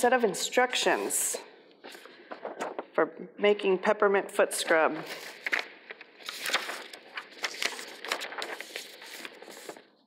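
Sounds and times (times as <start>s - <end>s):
paper and plastic bag rustling: 5.0s - 10.0s.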